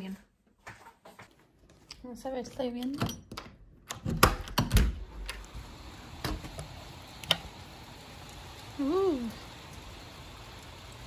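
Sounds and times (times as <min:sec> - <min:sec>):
rain hissing: 0:05.0 - 0:11.0.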